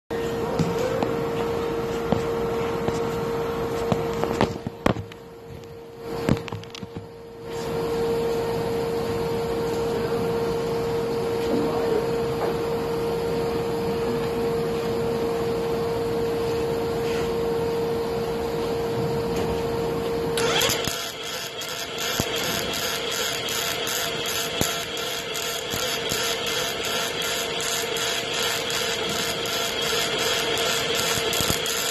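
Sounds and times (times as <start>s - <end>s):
welder arc buzzing: 19.6s - 31.9s.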